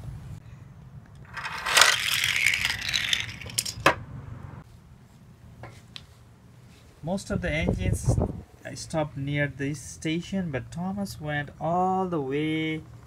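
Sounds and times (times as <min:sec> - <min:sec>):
wooden toy train rattling: 0:01.2 - 0:04.0.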